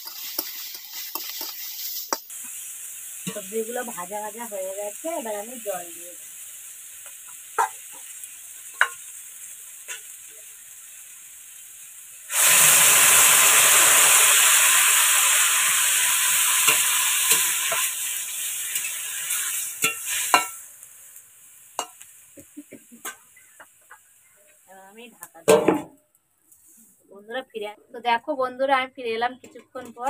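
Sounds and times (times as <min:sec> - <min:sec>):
metal spatula stirring pan: 0:00.0 - 0:03.5, 0:16.6 - 0:20.7, 0:21.8 - 0:24.1
water hissing in a hot pan: 0:00.0 - 0:25.4
vegetables frying in a wok: 0:00.0 - 0:30.0.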